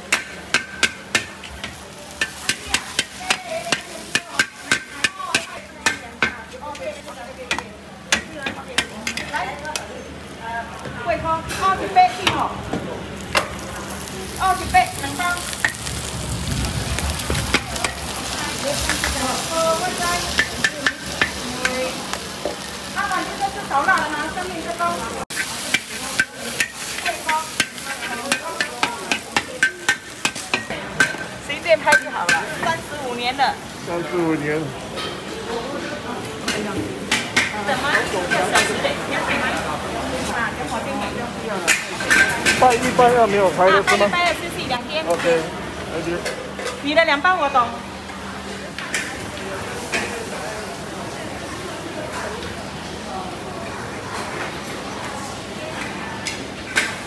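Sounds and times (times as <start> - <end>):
noodles sizzling in a wok: 0.0 - 57.0
metal spatula clanking on wok: 0.1 - 6.8, 20.3 - 21.8, 25.3 - 32.8, 41.6 - 43.0
metal spatula scraping wok: 25.3 - 32.8.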